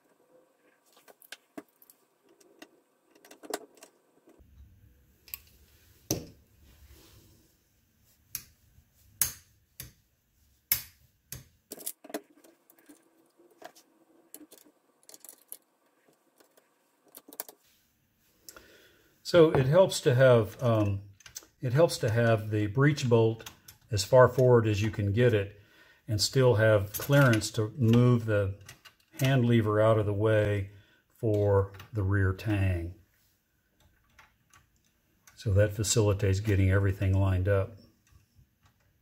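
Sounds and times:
rifle parts clicking and clinking: 11.7s - 17.6s.

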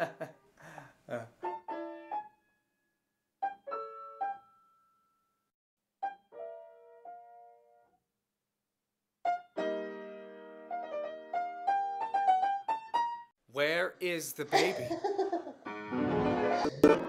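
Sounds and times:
solo piano: 1.4s - 2.4s, 3.4s - 5.0s, 6.0s - 8.0s, 9.2s - 13.3s.

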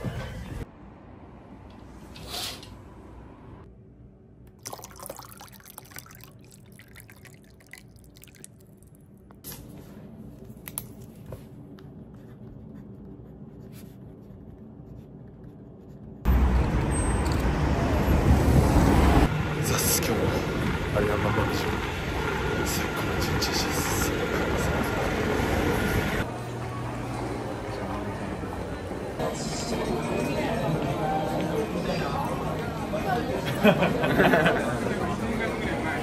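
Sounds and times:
city street traffic: 0.0s - 3.7s, 16.2s - 36.0s.

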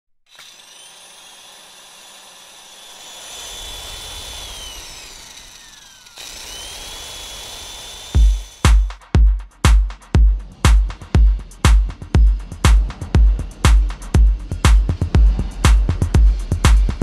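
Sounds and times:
electronic dance music bass beat: 8.2s - 17.0s.

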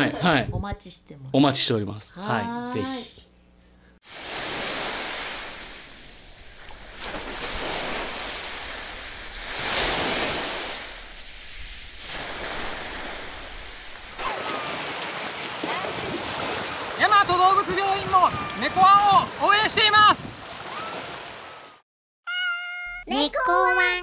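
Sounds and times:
sea water splashing: 4.1s - 21.8s.

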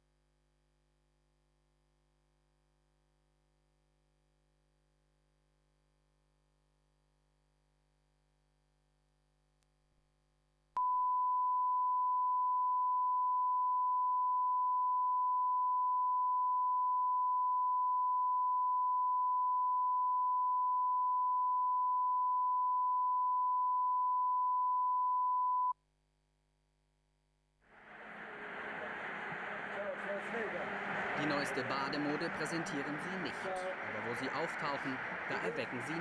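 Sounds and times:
steady test tone beep: 10.8s - 25.7s.

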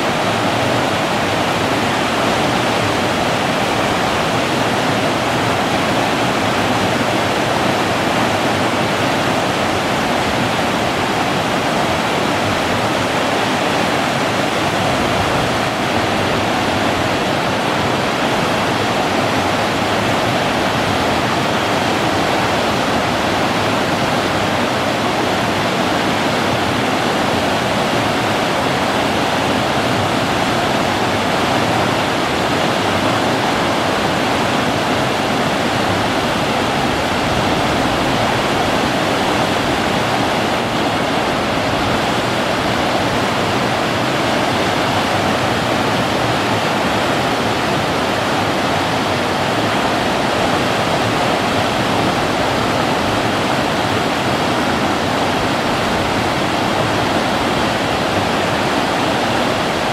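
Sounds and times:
river rapids rushing: 0.0s - 59.9s.

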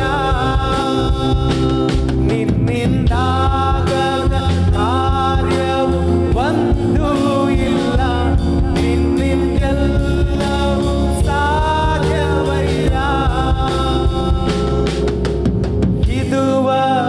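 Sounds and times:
person singing worship song: 0.0s - 15.2s, 16.0s - 17.0s
instrumental accompaniment with beat: 0.0s - 17.0s.

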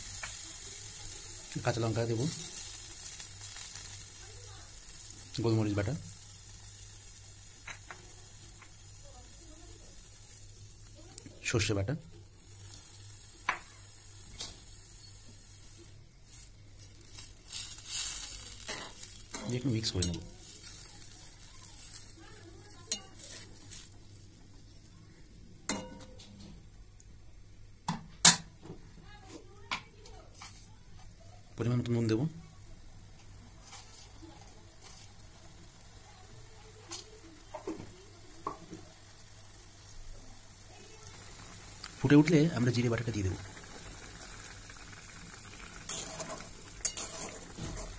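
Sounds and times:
curry sizzling in a pan: 0.0s - 47.9s
metal spatula scraping pan: 45.9s - 47.9s.

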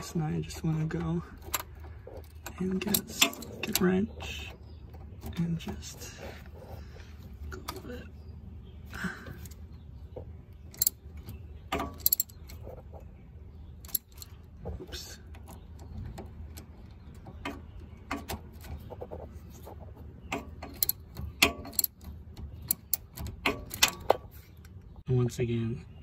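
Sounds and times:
ratcheting wrench clicking: 10.7s - 12.6s, 20.3s - 24.2s.

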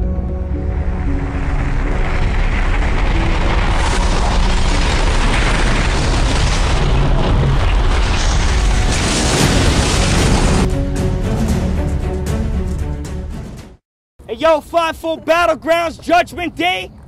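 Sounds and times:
explosion blast and rumble: 0.0s - 10.7s
dramatic intro music: 0.0s - 13.8s.

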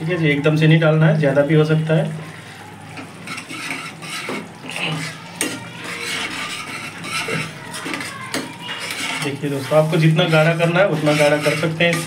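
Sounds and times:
ladle scraping metal pan: 3.0s - 12.0s.

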